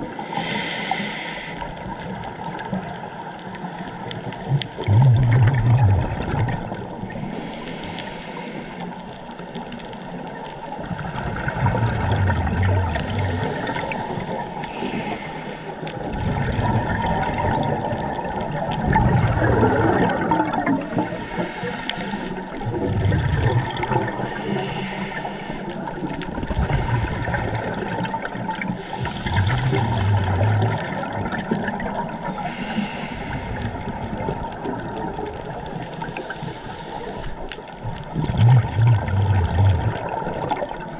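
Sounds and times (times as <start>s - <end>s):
regulator inhale hiss: 0.1s - 1.9s, 7.0s - 9.5s, 13.0s - 16.1s, 20.8s - 22.6s, 24.1s - 27.8s, 28.7s - 30.5s, 32.1s - 34.1s, 35.5s - 37.5s
exhaust bubbles gurgling: 4.2s - 7.4s, 10.2s - 15.2s, 16.0s - 40.9s.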